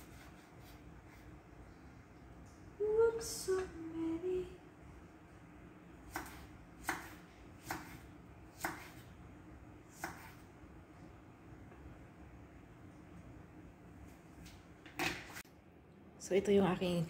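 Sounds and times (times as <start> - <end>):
knife chopping on wooden board: 6.1 - 9.0, 9.9 - 10.4.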